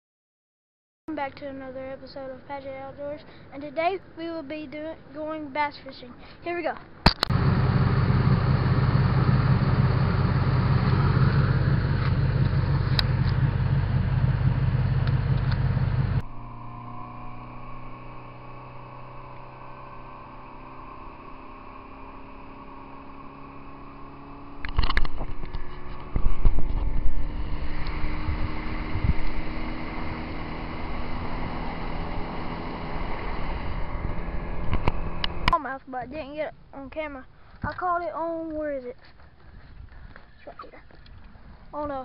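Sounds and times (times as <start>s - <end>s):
vehicle engine and road rumble: 1.1s - 42.0s
wind gusts: 6.8s - 37.8s
motor hum: 7.2s - 35.6s.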